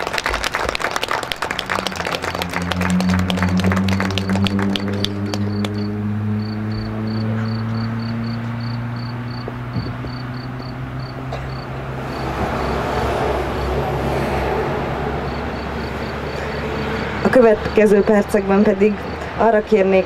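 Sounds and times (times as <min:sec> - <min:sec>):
lorry tyre noise: 0:00.0 - 0:19.5
engine hum: 0:00.0 - 0:20.0
insect chirping: 0:05.5 - 0:12.8, 0:15.2 - 0:17.8.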